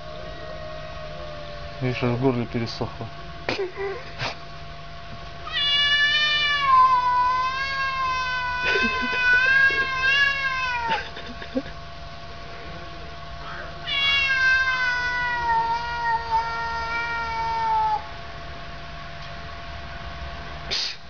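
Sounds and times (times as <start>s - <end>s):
cats yowling: 0.0s - 2.2s, 5.4s - 11.4s, 13.4s - 18.2s.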